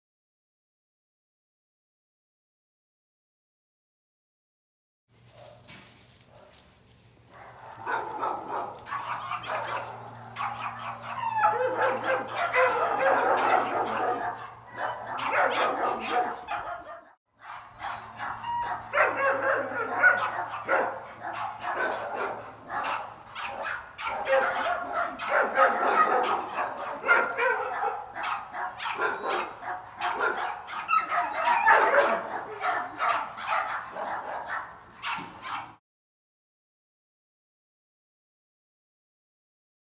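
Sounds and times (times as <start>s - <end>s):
dogs barking and yipping: 5.3s - 35.8s.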